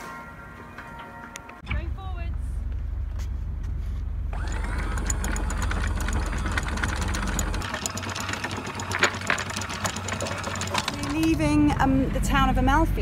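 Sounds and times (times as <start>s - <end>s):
anchor chain clanking: 4.4s - 11.7s.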